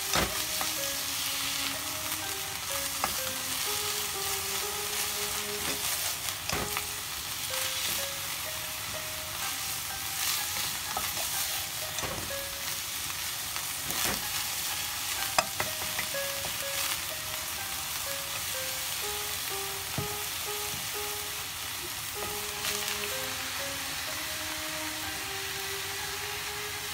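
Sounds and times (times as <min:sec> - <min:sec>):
meat sizzling in a frying pan: 0:00.0 - 0:26.9
wooden spatula scraping pan: 0:04.9 - 0:06.7.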